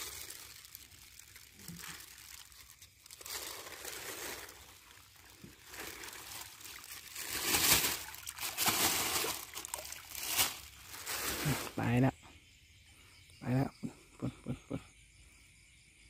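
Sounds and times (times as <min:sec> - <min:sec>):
plastic bag crinkling: 0:00.0 - 0:11.8
water pouring into a pond: 0:00.0 - 0:12.1.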